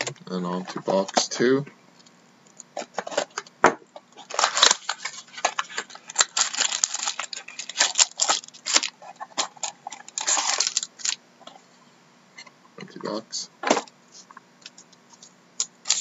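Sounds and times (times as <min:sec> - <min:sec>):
foil packs crinkling: 0:04.1 - 0:11.2.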